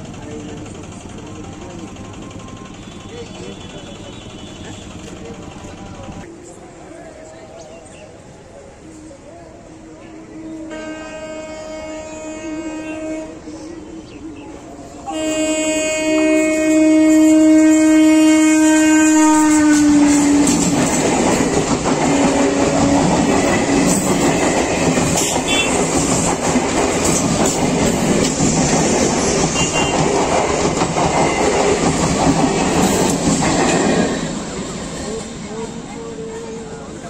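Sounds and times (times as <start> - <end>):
train horn blast: 10.0 - 13.7, 15.0 - 20.8, 25.1 - 26.1, 29.2 - 30.2
train wheels clattering on rails: 18.8 - 35.0.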